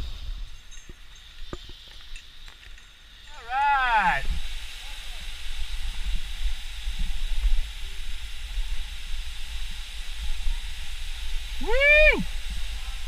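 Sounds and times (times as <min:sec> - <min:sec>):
wind rumbling on microphone: 0:00.0 - 0:13.0
waterfall rushing: 0:03.3 - 0:13.0.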